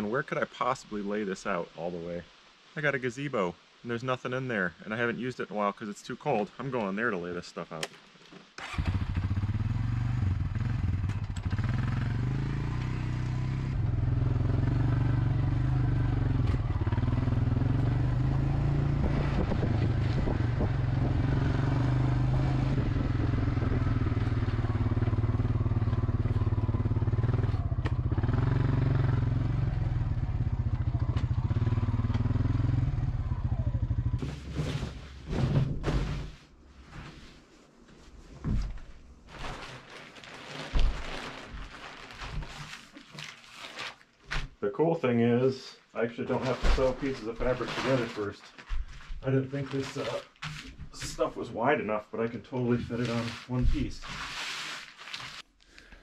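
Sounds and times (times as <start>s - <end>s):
atv engine running: 8.6s - 34.4s
thuds and knocks: 34.2s - 36.4s.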